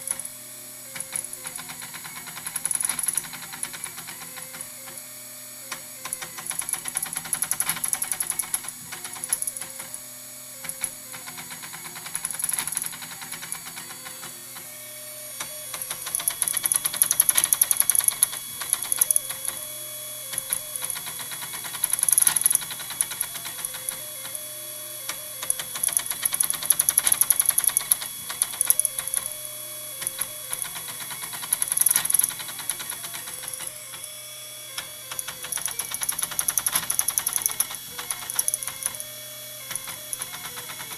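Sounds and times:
motor whining tones: 0.0 - 40.9
printer axes clanking and clicking: 1.0 - 4.6, 5.7 - 9.9, 10.6 - 14.8, 15.4 - 24.5, 25.1 - 29.4, 30.0 - 34.1, 34.8 - 39.1, 39.7 - 40.9.

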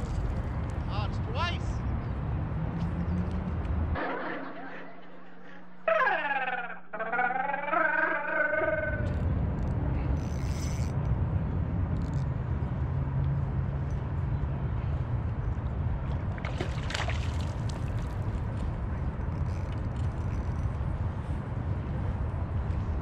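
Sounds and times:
water sloshing: 16.0 - 18.8.

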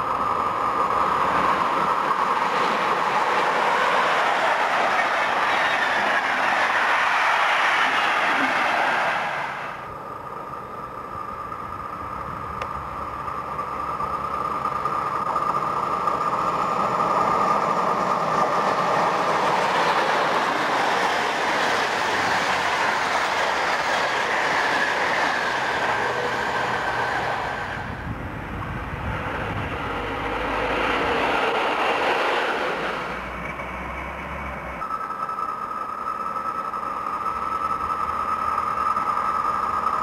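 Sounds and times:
electric train passing: 0.0 - 40.0
steady high whine: 0.0 - 40.0
wheels clattering over rail joints: 0.0 - 40.0.

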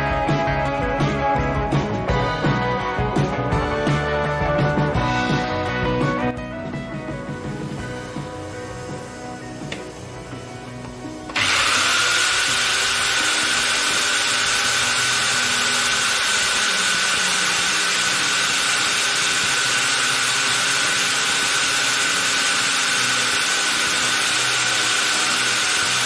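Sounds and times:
table saw motor whine: 7.3 - 26.0.

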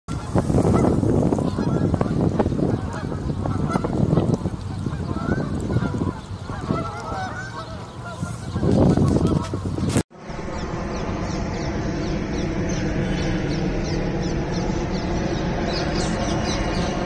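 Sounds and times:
geese honking: 0.1 - 17.0.

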